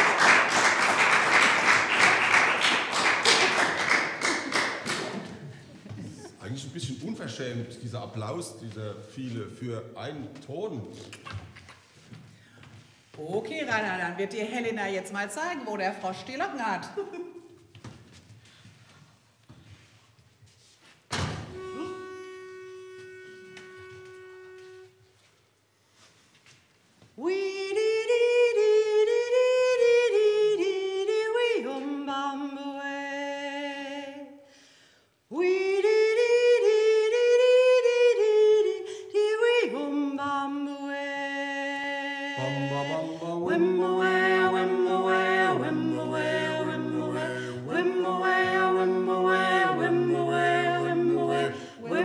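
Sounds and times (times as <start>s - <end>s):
four-part a cappella harmony: 21.3s - 25.0s, 27.2s - 34.6s, 35.3s - 52.0s
woman singing unaccompanied: 35.3s - 52.0s.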